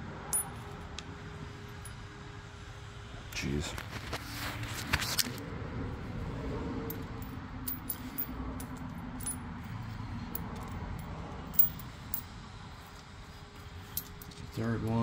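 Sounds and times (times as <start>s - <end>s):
metal washers clinking on concrete: 0.3s - 1.0s, 1.6s - 2.1s, 6.8s - 13.1s, 13.8s - 15.0s.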